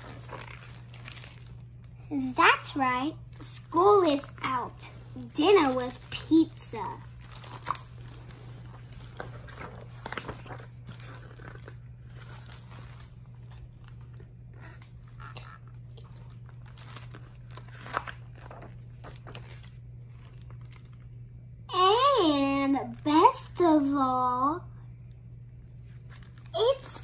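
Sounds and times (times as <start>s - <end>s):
book pages rustling: 0.0s - 1.6s, 4.2s - 21.0s, 25.8s - 26.9s
steady low hum: 0.0s - 27.0s.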